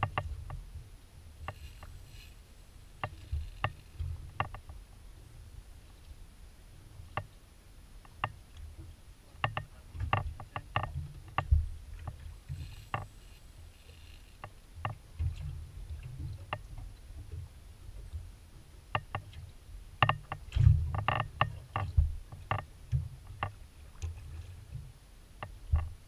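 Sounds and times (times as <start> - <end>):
water slapping against hull: 1.4 - 4.9, 8.1 - 26.0.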